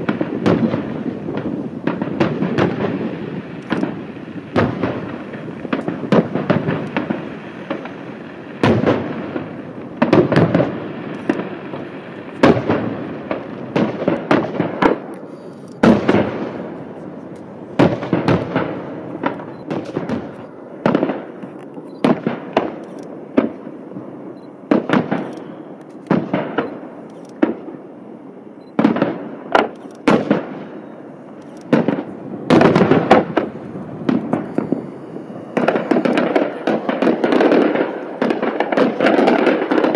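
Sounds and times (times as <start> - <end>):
firework shells bursting: 0.0 - 23.8, 24.7 - 27.6, 28.8 - 39.9.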